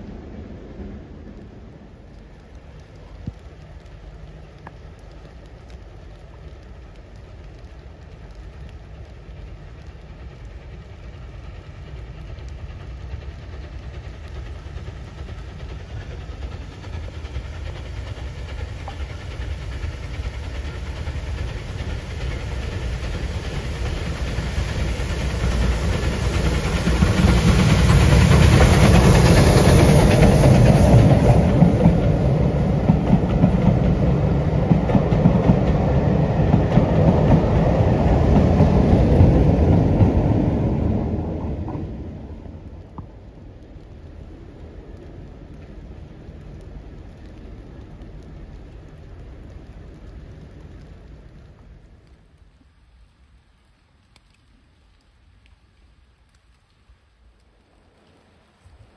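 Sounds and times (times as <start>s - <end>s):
high steam hiss: 0.0s - 5.0s, 6.6s - 43.2s
locomotives passing: 0.0s - 52.2s.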